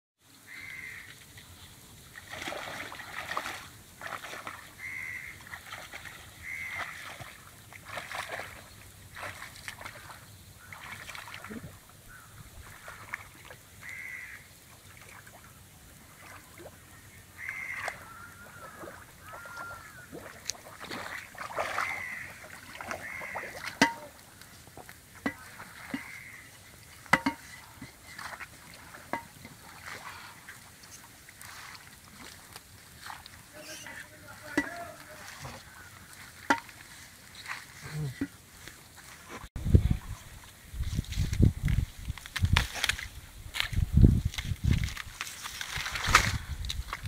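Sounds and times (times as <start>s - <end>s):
water splashing and sloshing: 0.3s - 47.0s
birds calling: 4.7s - 5.5s, 6.4s - 7.3s, 9.8s - 13.2s, 13.8s - 14.5s, 16.7s - 20.5s, 21.1s - 24.6s, 25.4s - 26.6s.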